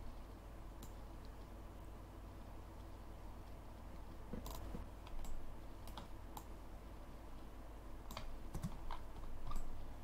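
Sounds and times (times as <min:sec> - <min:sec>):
low hum: 0:00.0 - 0:10.0
mouse and keyboard clicks: 0:04.0 - 0:06.5, 0:08.1 - 0:09.8.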